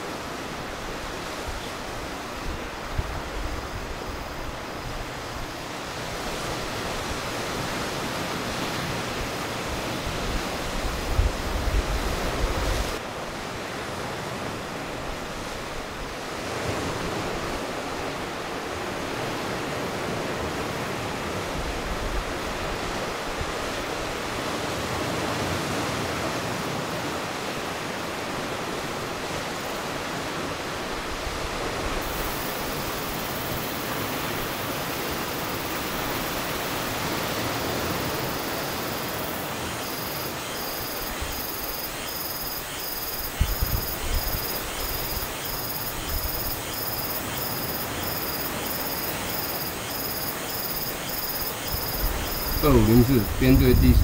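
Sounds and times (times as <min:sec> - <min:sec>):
sea surf: 0:00.0 - 0:54.0
wind blowing over microphone: 0:01.0 - 0:13.0, 0:43.1 - 0:46.7, 0:51.7 - 0:54.0.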